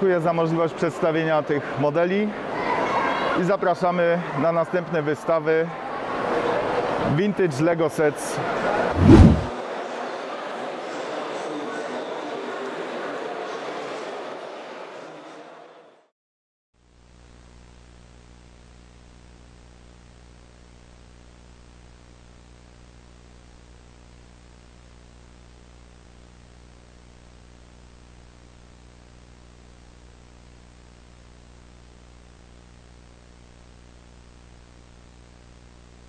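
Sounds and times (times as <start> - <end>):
low mains hum: 16.8 - 36.0.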